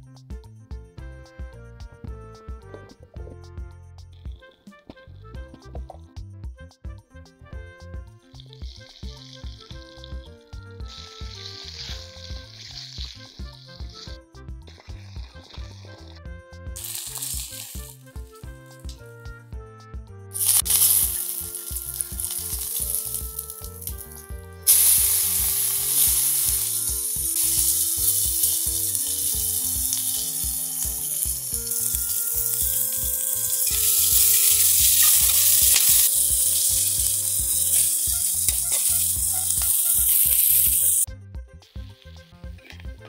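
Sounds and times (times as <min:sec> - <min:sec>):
slow stepped background music: 0:00.0 - 0:43.0
garlic and onion sizzling in oil: 0:08.3 - 0:16.2, 0:16.8 - 0:18.9, 0:20.4 - 0:41.1
ladle stirring in iron pan: 0:16.8 - 0:18.1, 0:20.4 - 0:40.9.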